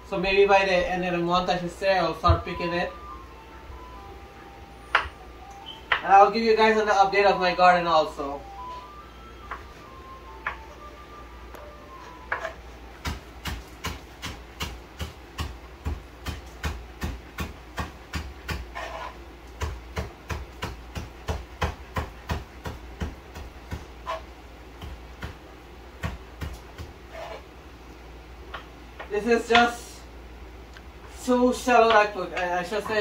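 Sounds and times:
knife chopping on wooden board: 12.3 - 24.2, 26.0 - 27.4.

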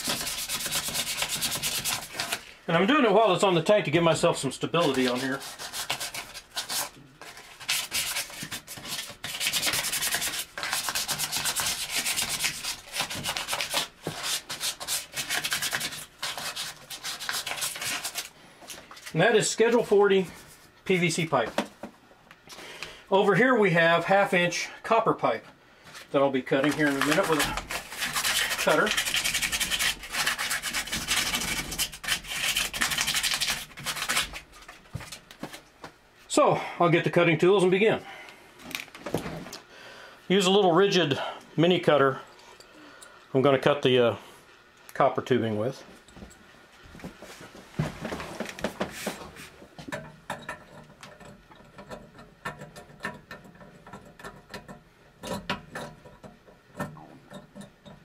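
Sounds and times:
sandpaper scratching pipe: 0.0 - 2.5, 4.8 - 18.3, 26.6 - 34.8.

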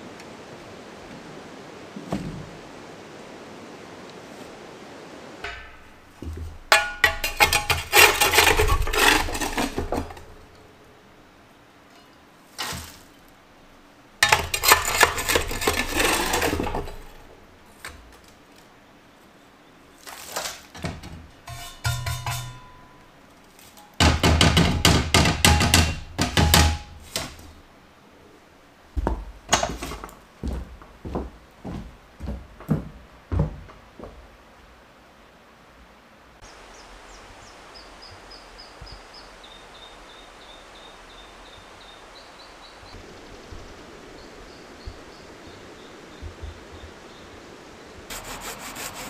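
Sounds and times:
metal pots clattering and scraping: 5.4 - 10.6, 14.2 - 18.1, 20.2 - 23.0.

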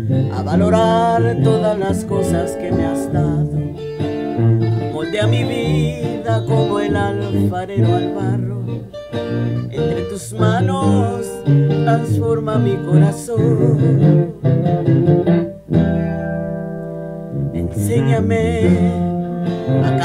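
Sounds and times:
recorded guitar accompaniment: 0.0 - 20.0.

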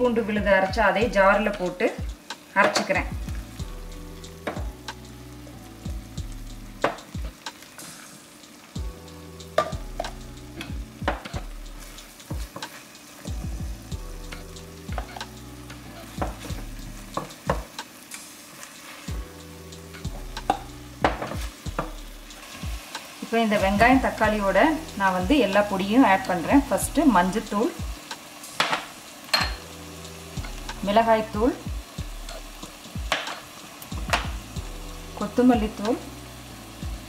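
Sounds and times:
food sizzling: 0.0 - 37.0.

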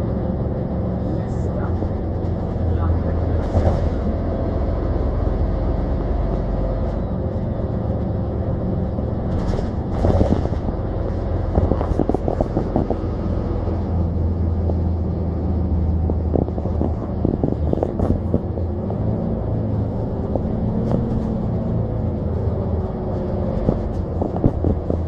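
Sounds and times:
bus engine and road drone: 0.0 - 25.0
bus body clicks and knocks: 9.2 - 13.3, 16.0 - 19.0, 23.5 - 25.0.

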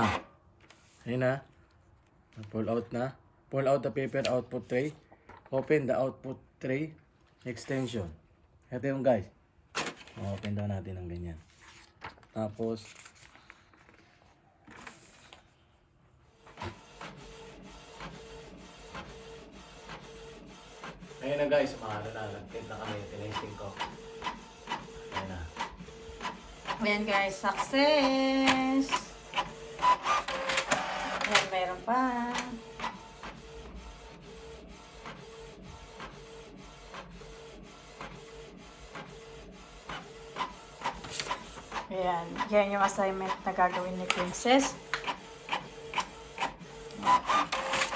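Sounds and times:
printer mechanism whirring and clicking: 16.3 - 47.9.

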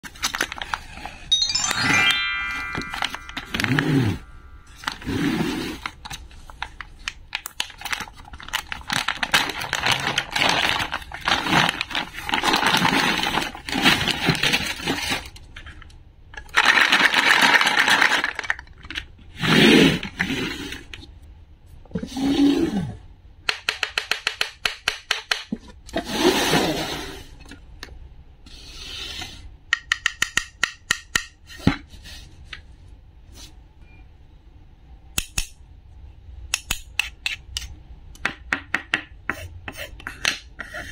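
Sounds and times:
plastic bag crinkling: 5.8 - 15.3
toy pieces clicking and tapping: 23.5 - 25.5, 29.7 - 31.4.

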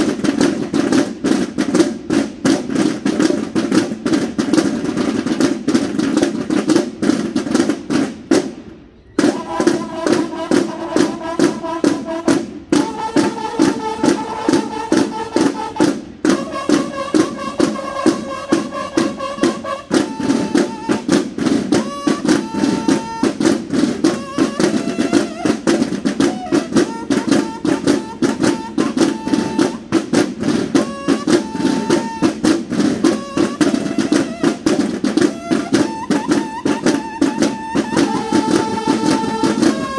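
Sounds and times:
snare drums cadence: 0.0 - 39.9
bugles playing: 9.2 - 39.9.

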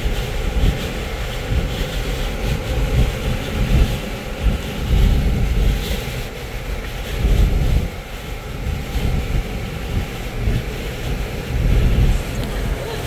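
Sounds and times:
wind and road noise in vehicle: 0.0 - 13.0.

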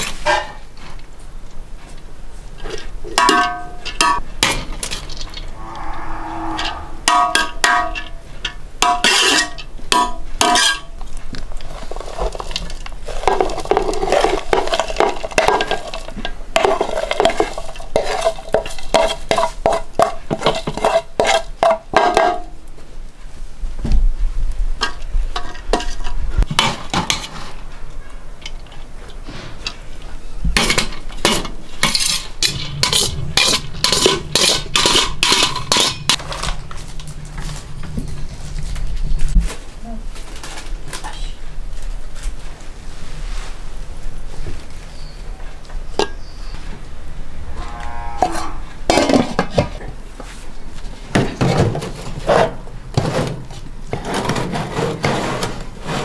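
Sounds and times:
metal skimmer scraping pots: 30.6 - 37.6, 51.4 - 56.0.

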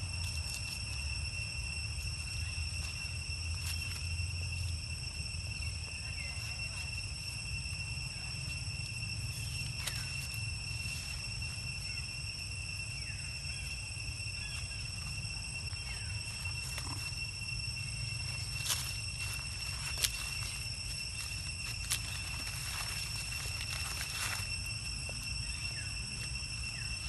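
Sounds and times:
insect chorus: 0.0 - 27.0.

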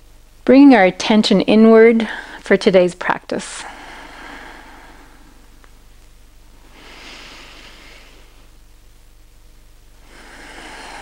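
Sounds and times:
low room hum: 0.0 - 11.0
soft breath in through nose: 6.7 - 8.5, 10.0 - 11.0.

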